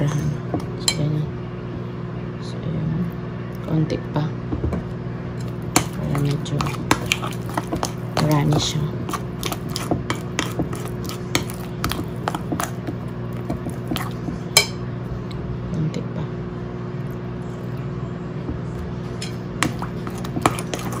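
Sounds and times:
steady low hum: 0.0s - 21.0s
fork beating batter: 5.4s - 14.7s, 19.2s - 21.0s.

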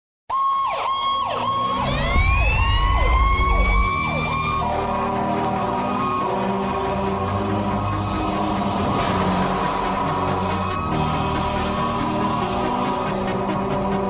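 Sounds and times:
electronic tone with falling swoops: 1.2s - 4.6s
background music with held notes: 3.1s - 14.0s.

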